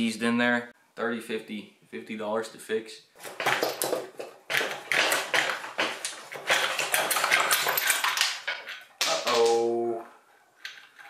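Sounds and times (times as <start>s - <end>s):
metallic scraping and clinking: 6.0s - 9.0s, 10.6s - 11.0s.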